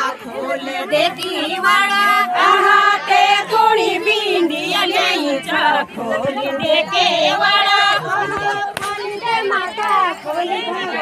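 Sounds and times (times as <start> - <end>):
women singing folk song: 0.0 - 11.0.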